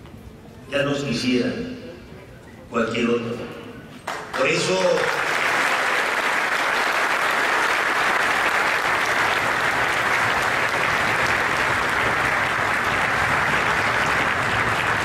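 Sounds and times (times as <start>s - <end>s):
audience applauding: 4.0s - 15.0s.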